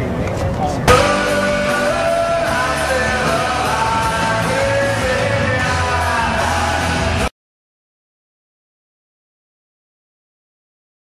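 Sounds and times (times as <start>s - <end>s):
rock music with singing: 0.9s - 7.3s.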